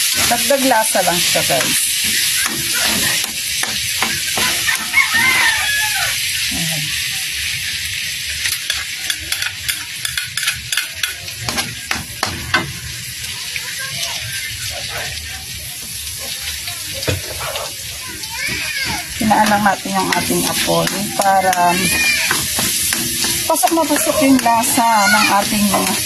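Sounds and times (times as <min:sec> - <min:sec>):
metal ladle scraping pan: 0:00.0 - 0:05.7, 0:17.0 - 0:26.0
garlic sizzling in a wok: 0:00.0 - 0:26.0.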